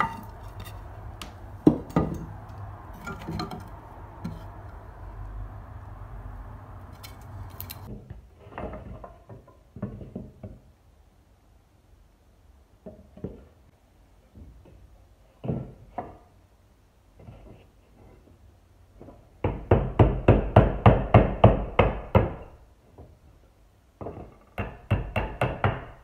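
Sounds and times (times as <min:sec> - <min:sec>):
wooden boards knocking and clattering: 0:00.0 - 0:02.3.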